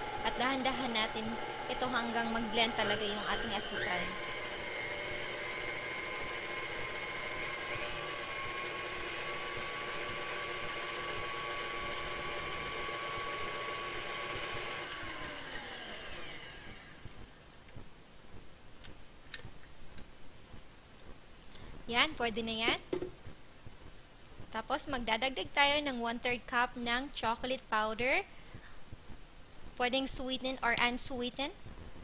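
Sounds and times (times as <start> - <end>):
stand mixer motor whine: 0.0 - 17.1.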